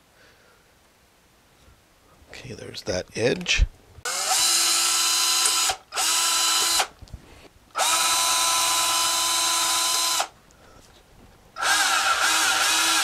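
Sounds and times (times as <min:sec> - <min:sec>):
cordless drill boring into plastic: 0:04.1 - 0:06.9, 0:07.8 - 0:10.3, 0:11.6 - 0:13.0.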